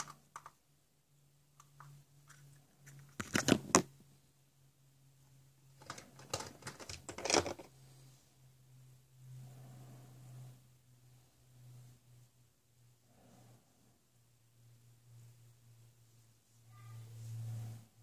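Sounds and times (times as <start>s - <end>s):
plastic toys clattering: 0.0s - 0.6s, 5.8s - 7.7s
faint low hum: 0.0s - 18.0s.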